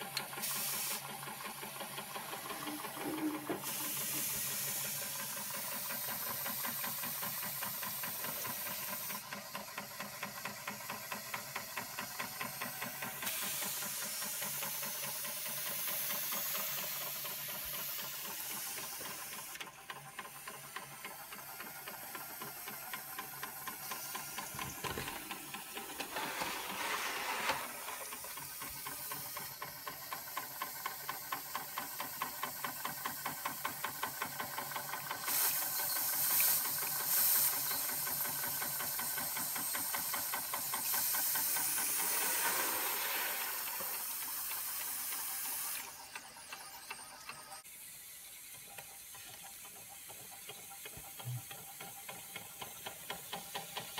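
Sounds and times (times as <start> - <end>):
steam hissing: 0.0 - 53.9
toy steam engine beating: 0.0 - 53.9.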